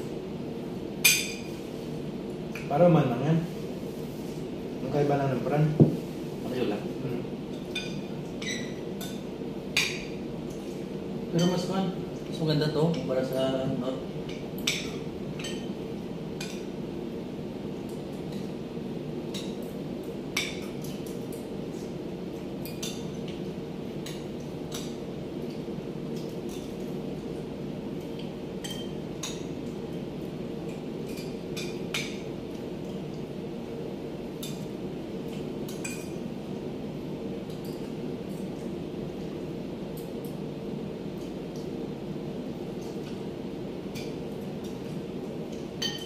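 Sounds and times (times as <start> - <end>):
steady low hum: 0.0 - 46.0
cutlery clinking on plates: 28.6 - 29.5, 45.8 - 46.0.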